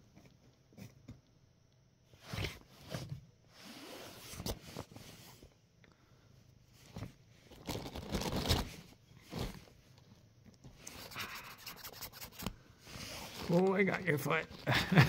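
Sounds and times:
nylon tunnel rustling and scraping: 6.8 - 10.0, 12.8 - 15.0.

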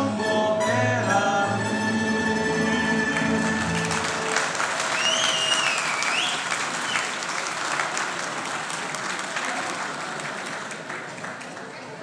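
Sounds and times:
string band music: 0.0 - 4.7
audience clapping: 3.1 - 12.0
sliding whistle: 4.9 - 7.1.

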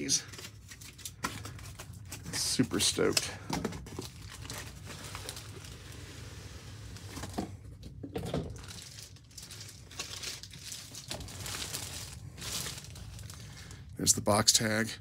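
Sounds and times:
plastic bag crinkling: 3.8 - 6.2, 8.3 - 14.0.

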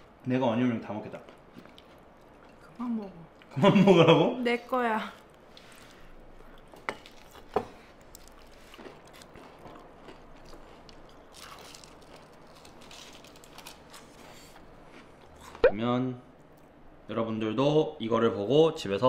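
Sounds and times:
person chewing onion ring: 5.2 - 15.7.

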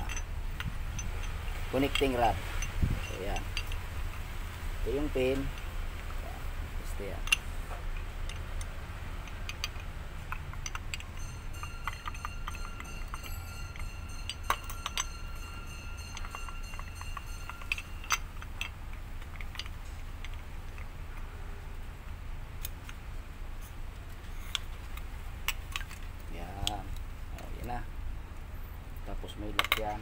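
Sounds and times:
thin metallic ringing: 0.0 - 21.9
light metallic clicks and clinks: 0.0 - 30.0.

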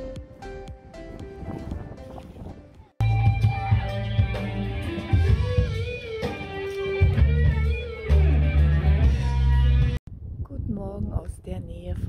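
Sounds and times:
drums: 0.0 - 10.0
bass guitar: 3.0 - 10.0
electric guitar: 3.0 - 10.0.

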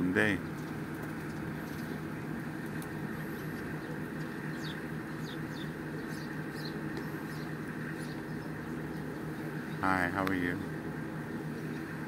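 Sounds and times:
outdoor background noise: 0.0 - 12.0
steady low hum: 0.0 - 12.0
high downward-sliding bird chirps: 2.9 - 12.0.

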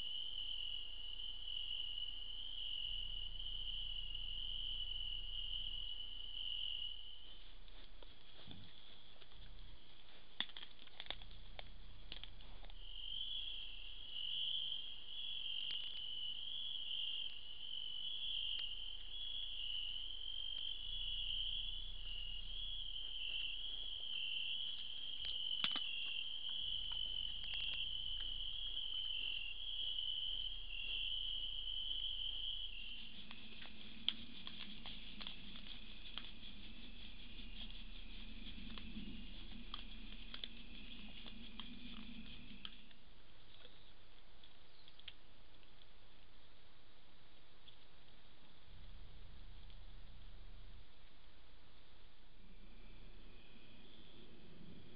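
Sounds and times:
crickets chirping: 0.0 - 54.9
faint clicks and rustles: 7.2 - 12.8, 33.0 - 46.0
low hum: 30.1 - 44.5, 48.5 - 54.9.

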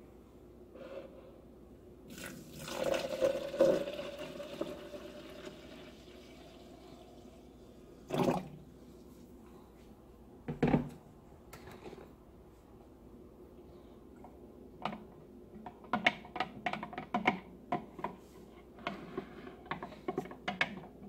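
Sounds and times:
water pouring into a cup: 2.1 - 8.6.

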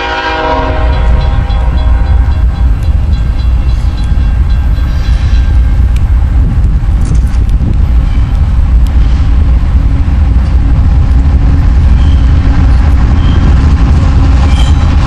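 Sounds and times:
locomotive air horn: 0.0 - 2.6
loud low rumble: 0.6 - 15.0.

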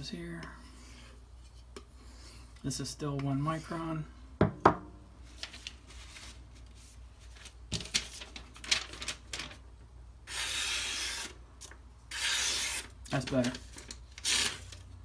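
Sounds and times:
knife slicing through paper: 10.3 - 11.3.

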